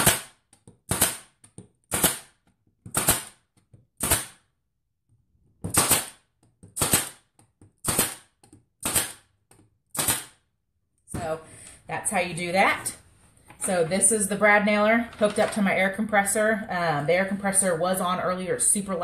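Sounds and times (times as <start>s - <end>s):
pneumatic nailer shots: 0.0s - 3.4s, 4.0s - 4.4s, 5.7s - 6.2s, 6.8s - 9.3s, 9.9s - 10.4s.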